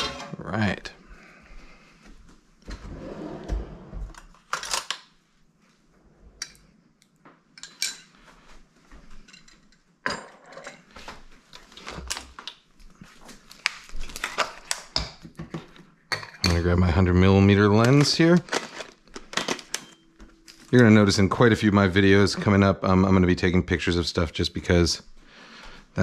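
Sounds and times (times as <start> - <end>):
kitchen drawer sliding: 2.8 - 4.2.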